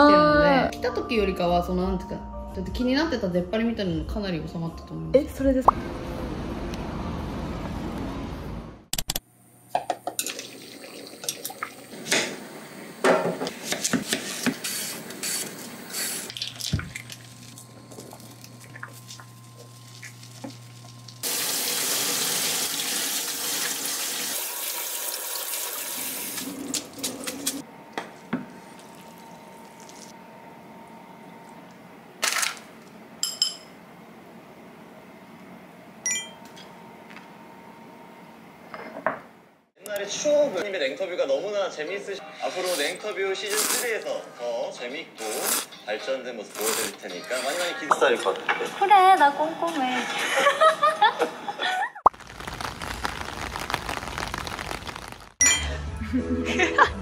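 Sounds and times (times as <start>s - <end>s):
saucepan drained into colander: 10.2s - 11.9s, 18.1s - 27.6s
dishes clinking: 33.2s - 33.8s.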